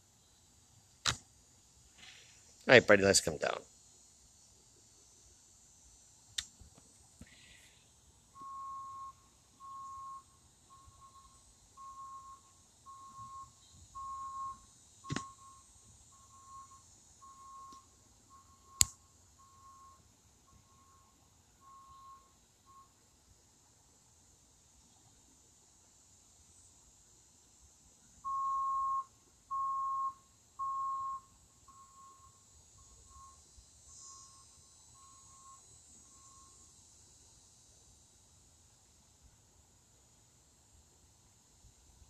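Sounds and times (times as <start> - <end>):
sharp clicks: 1.0 - 1.2.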